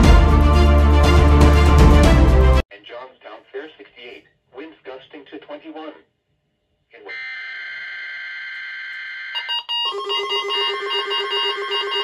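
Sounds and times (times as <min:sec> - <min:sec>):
alert radios beeping: 0:07.1 - 0:12.0.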